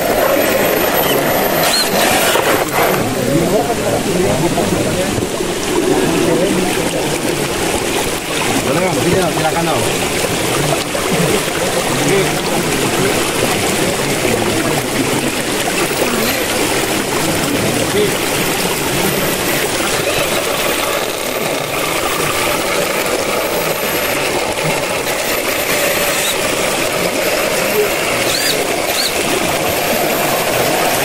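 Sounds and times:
rushing flowing water: 0:00.0 - 0:31.0.

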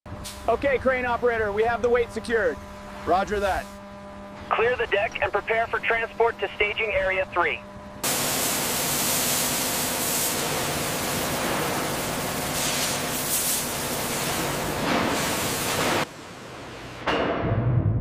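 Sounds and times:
cutting torch hissing: 0:08.0 - 0:16.1.

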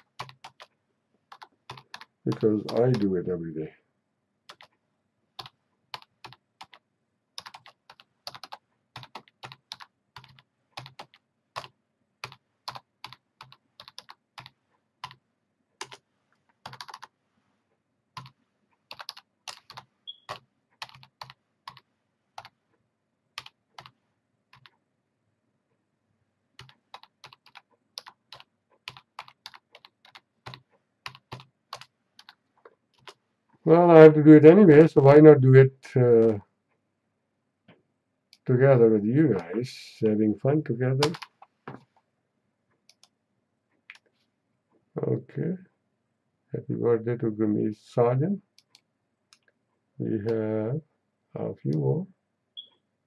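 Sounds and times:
typing on keyboard: 0:00.0 - 0:03.1, 0:04.5 - 0:04.8, 0:05.4 - 0:06.8, 0:07.4 - 0:15.2, 0:15.8 - 0:16.0, 0:16.6 - 0:17.1, 0:18.2 - 0:21.8, 0:23.4 - 0:24.8, 0:26.6 - 0:33.2, 0:41.0 - 0:41.4.

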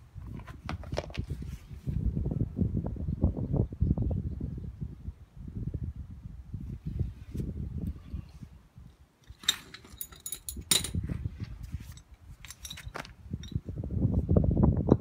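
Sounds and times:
wrench clinking on metal nut: 0:09.2 - 0:11.0, 0:12.0 - 0:13.6.

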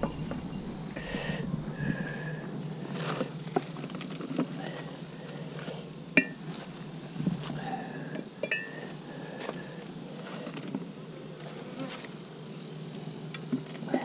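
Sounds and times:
bees humming: 0:00.0 - 0:14.0
metal tool clinking on hive: 0:06.2 - 0:06.4, 0:08.4 - 0:08.9.

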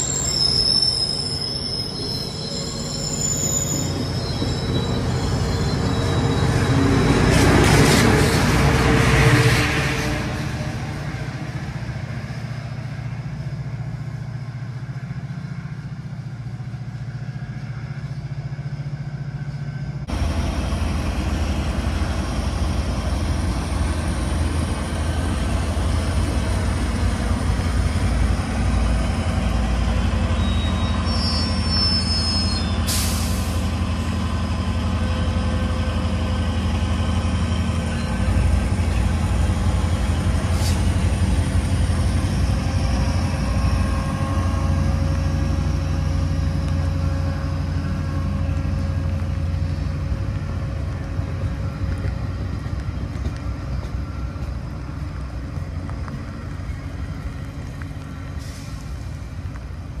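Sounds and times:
diesel train engine drone: 0:00.0 - 1:00.0
short air hisses: 0:32.8 - 0:33.7, 0:40.5 - 0:41.0, 0:58.4 - 0:59.0.

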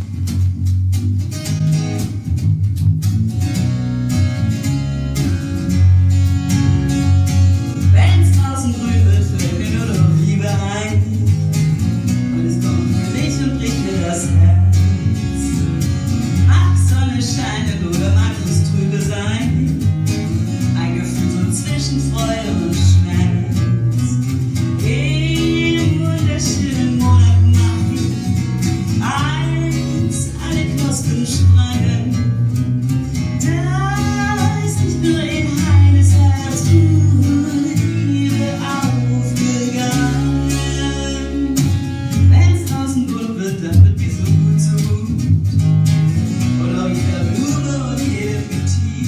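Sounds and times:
guitars playing: 0:00.0 - 0:49.0
woman singing: 0:07.8 - 0:11.3, 0:12.3 - 0:15.6, 0:16.4 - 0:19.8, 0:20.7 - 0:32.2, 0:33.4 - 0:45.2, 0:46.6 - 0:49.0.

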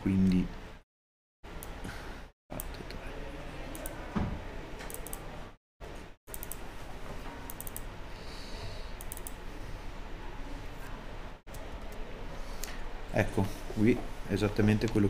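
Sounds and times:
room hum: 0:01.5 - 0:15.0
computer mouse clicks: 0:03.7 - 0:04.0, 0:04.9 - 0:05.2, 0:06.3 - 0:06.6, 0:07.5 - 0:07.9, 0:09.0 - 0:09.4.

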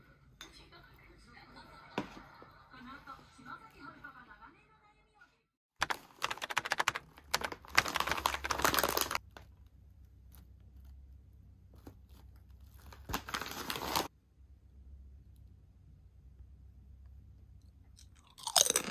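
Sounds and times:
chip bag crinkling: 0:05.8 - 0:09.6, 0:11.7 - 0:14.1, 0:18.0 - 0:18.9.

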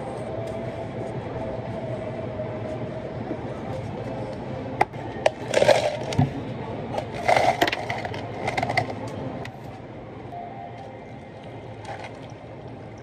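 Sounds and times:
ice cubes clattering into plastic cups: 0:05.4 - 0:06.2, 0:07.0 - 0:08.9.

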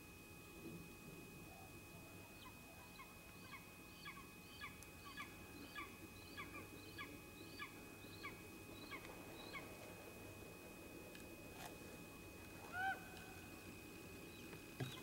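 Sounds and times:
bird calling: 0:02.3 - 0:09.8, 0:12.6 - 0:13.6, 0:14.2 - 0:15.0.

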